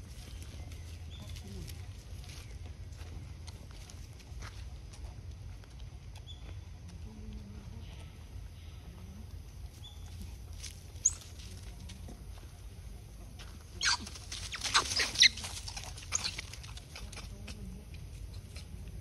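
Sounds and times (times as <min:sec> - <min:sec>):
monkeys squealing and chirping: 0:13.8 - 0:16.7.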